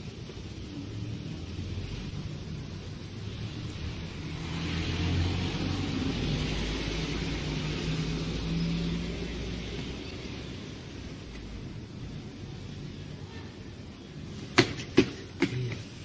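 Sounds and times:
tyre noise: 0:14.3 - 0:16.0.

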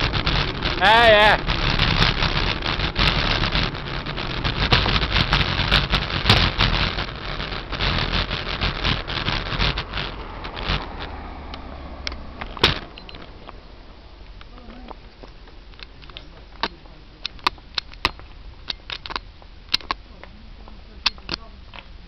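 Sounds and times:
wind and road noise: 0:00.0 - 0:22.0
small knocks and clicks: 0:14.2 - 0:22.0.

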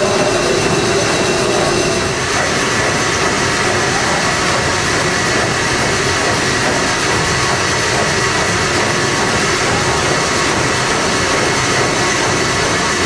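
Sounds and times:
steam engine running: 0:00.0 - 0:13.0.

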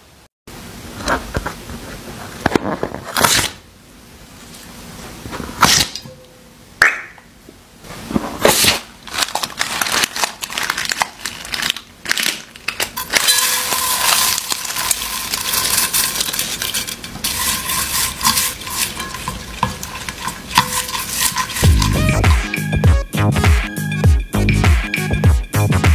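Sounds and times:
slime crackling while stirred: 0:08.5 - 0:22.3.

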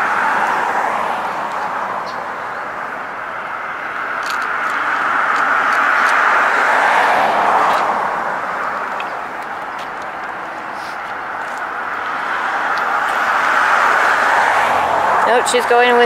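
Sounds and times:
vehicle tyre and road hiss: 0:04.2 - 0:15.4.

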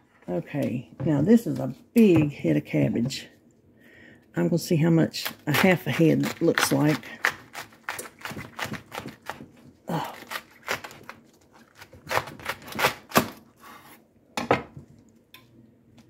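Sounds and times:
knife cutting cabbage on board: 0:05.5 - 0:14.0.

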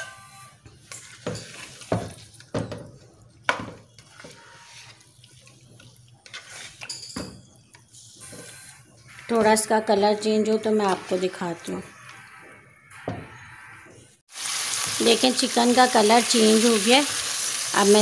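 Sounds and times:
chicken sizzling in hot oil: 0:14.3 - 0:18.0.

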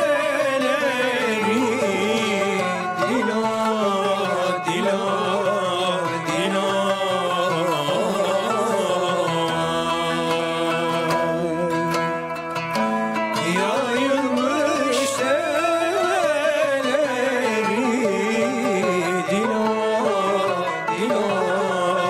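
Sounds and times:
kanun: 0:00.0 - 0:22.0
kemence bowed melody: 0:00.0 - 0:22.0
oud: 0:00.0 - 0:22.0.

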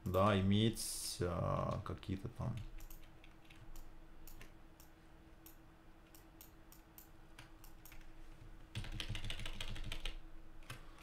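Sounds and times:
computer mouse clicks: 0:02.6 - 0:08.1
keyboard key presses: 0:08.7 - 0:10.8.

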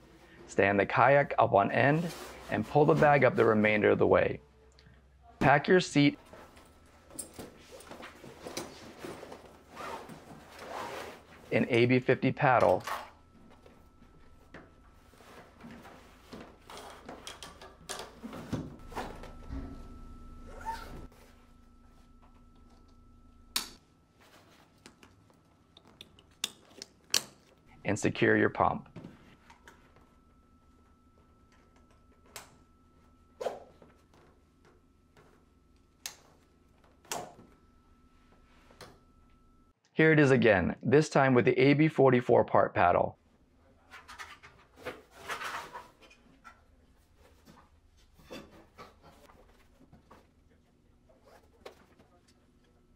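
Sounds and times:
fabric rustling and scraping: 0:01.8 - 0:03.7, 0:06.2 - 0:11.7.

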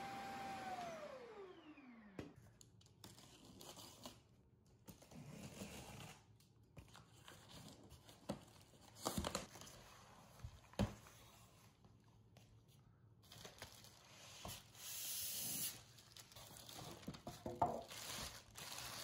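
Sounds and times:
vacuum motor whine winding down: 0:00.0 - 0:02.4
cardboard and plastic wrap rustling: 0:05.0 - 0:14.8, 0:15.6 - 0:19.0.

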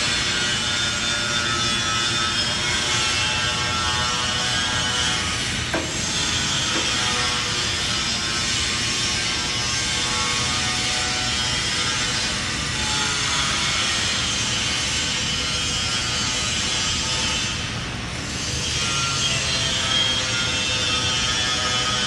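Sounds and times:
industrial machinery hum and hiss: 0:00.0 - 0:22.0.

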